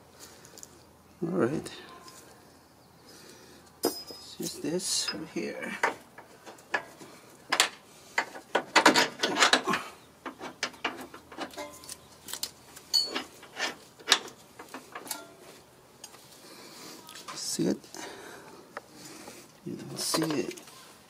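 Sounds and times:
metal parts clicking and knocking: 7.5 - 15.4.

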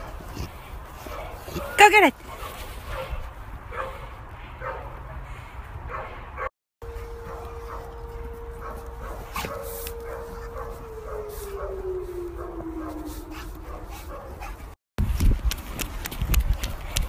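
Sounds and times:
dog whining: 7.2 - 14.6.

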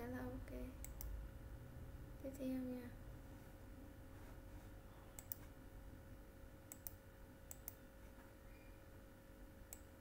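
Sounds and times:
low steady hum: 0.0 - 10.0
computer mouse clicking: 0.8 - 1.2, 5.1 - 5.5, 6.7 - 7.8, 9.7 - 10.0.

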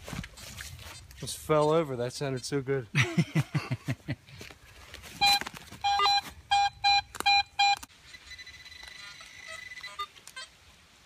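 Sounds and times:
metal detector beeps: 5.2 - 10.1.

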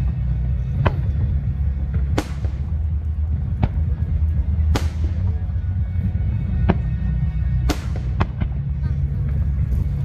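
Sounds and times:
fireworks bangs: 0.0 - 5.8, 6.6 - 8.7
deep rumble of distant explosions: 0.0 - 10.0
music playing: 0.0 - 10.0.

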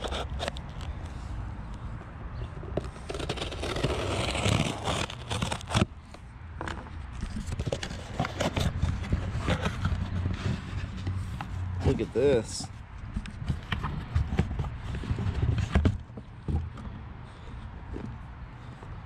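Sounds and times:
cardboard flaps scraping and rustling: 2.8 - 5.9, 7.3 - 12.2, 13.4 - 16.1
packing tape cut and torn: 3.0 - 5.9.

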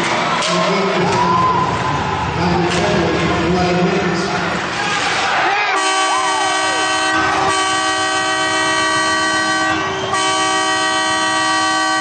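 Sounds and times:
goal horn: 5.8 - 12.0.

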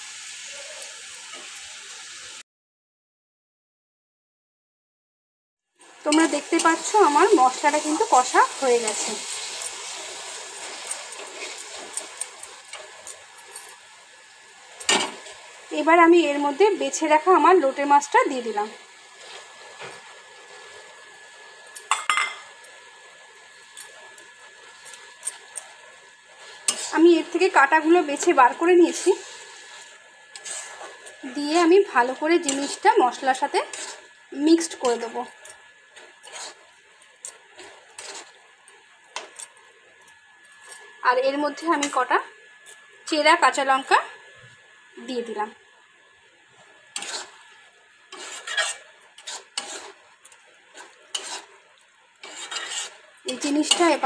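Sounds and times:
metal spatula scraping a pan: 6.1 - 13.8, 26.4 - 27.3, 28.9 - 38.4, 46.9 - 54.0
spoon clinking on metal pan: 21.8 - 22.5.

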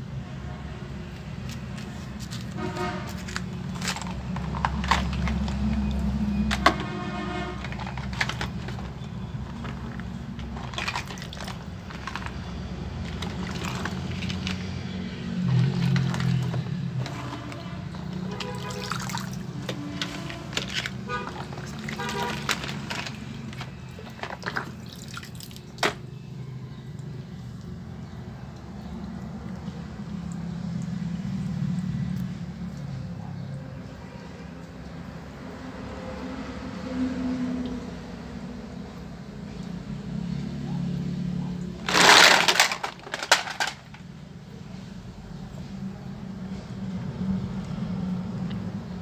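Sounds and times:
water dripping and splashing: 1.0 - 6.8, 7.6 - 33.0
plastic toy trucks clacking: 2.2 - 24.9, 41.8 - 44.1.

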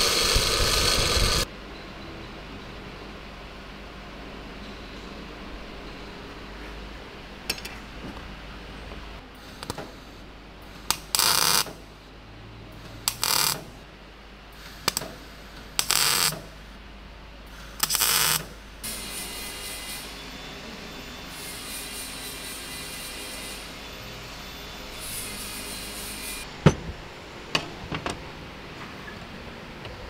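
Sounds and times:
welder crackling bursts: 0.0 - 1.5, 10.9 - 11.7, 13.1 - 13.6, 15.8 - 16.3, 17.8 - 18.5.

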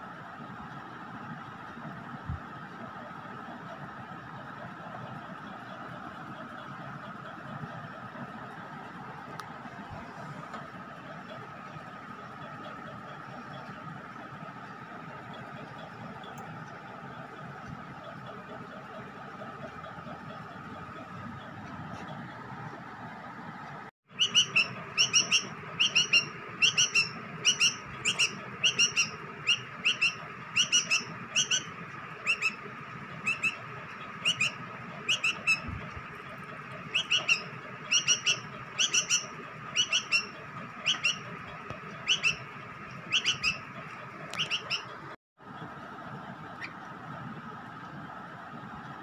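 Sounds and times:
bird chirping: 24.1 - 45.0.

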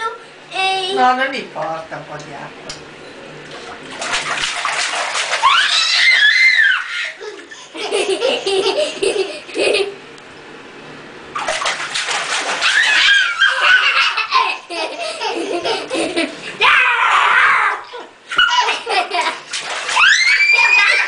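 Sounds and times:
toddler splashing water: 3.4 - 8.3, 11.4 - 16.7, 17.6 - 21.0
toddler laughing: 6.9 - 10.0, 12.9 - 16.4, 17.8 - 19.4.

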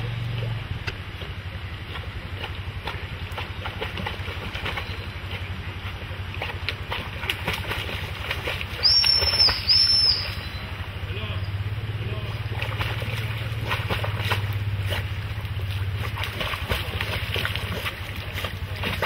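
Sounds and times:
dog splashing through water: 0.1 - 10.9, 12.3 - 19.0
high-pitched whistle blasts: 8.8 - 10.6.

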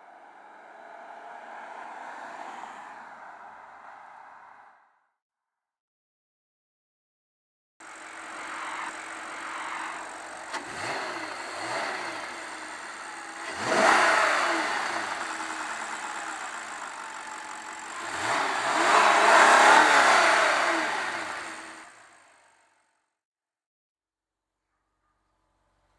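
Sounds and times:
car engine idling and revving: 7.8 - 22.8.

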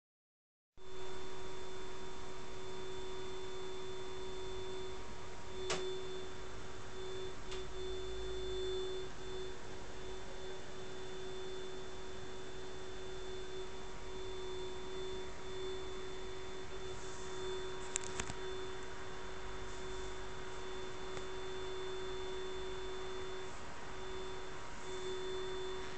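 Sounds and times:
steady hum: 0.8 - 25.9.

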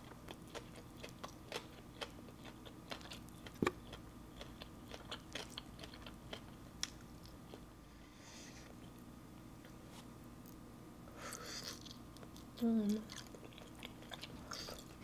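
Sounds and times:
close chewing and biting: 0.0 - 7.6, 11.5 - 15.0.

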